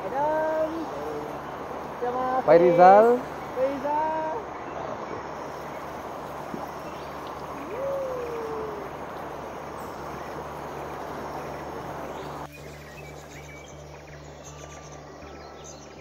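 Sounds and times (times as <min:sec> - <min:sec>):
river rushing over rocks: 0:00.0 - 0:12.5.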